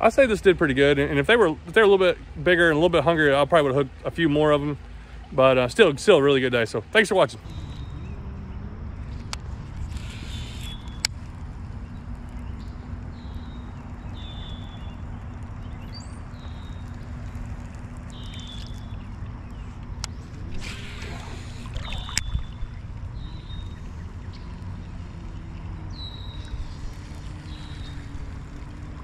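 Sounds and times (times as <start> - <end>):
water sloshing and gurgling: 0.0 - 29.0
reel clicks: 9.1 - 29.0
hissing rush: 20.4 - 22.2.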